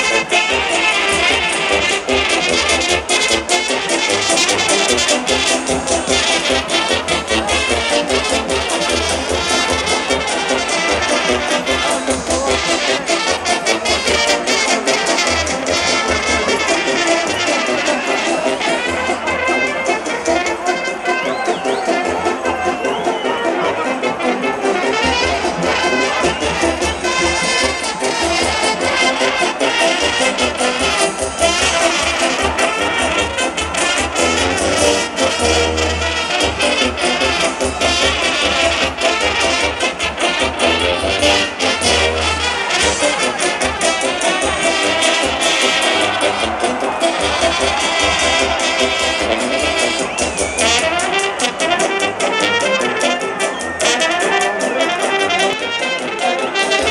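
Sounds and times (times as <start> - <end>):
brass band playing: 0.0 - 56.9
trumpets: 0.0 - 56.9
bass drum beat: 25.0 - 51.4.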